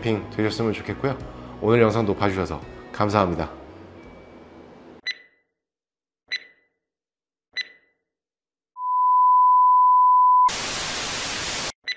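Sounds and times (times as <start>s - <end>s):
steady single-pitch beep: 7.6s - 7.9s
tv static hiss: 10.5s - 11.7s.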